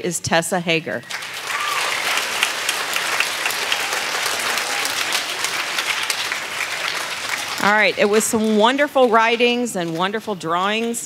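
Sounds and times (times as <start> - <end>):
audience applauding: 1.0 - 9.2.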